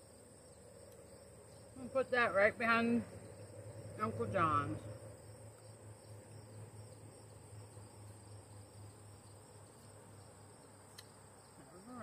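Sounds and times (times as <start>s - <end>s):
insects chirring: 0.0s - 12.0s
low hum: 0.5s - 9.6s.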